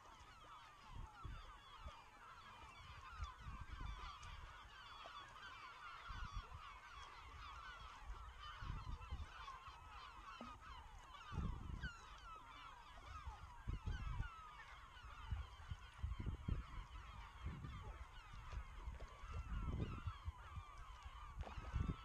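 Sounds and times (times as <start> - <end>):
flock of birds honking: 0.0 - 22.0.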